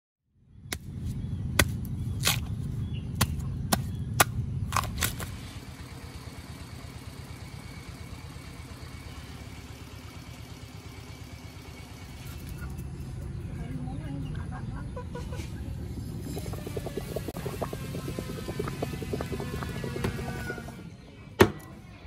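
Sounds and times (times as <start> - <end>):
machete chopping bamboo: 0.7 - 5.4
low rumble: 15.5 - 21.1.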